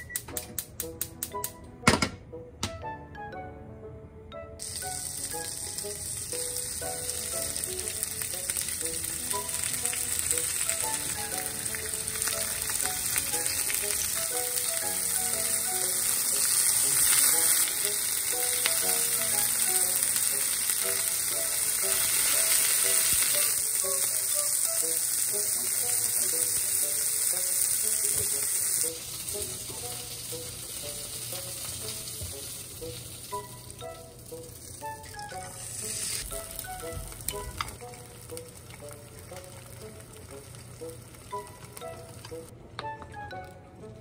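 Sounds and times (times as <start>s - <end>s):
light background music: 0.0s - 44.0s
meat sizzling in frying pan: 4.6s - 42.5s.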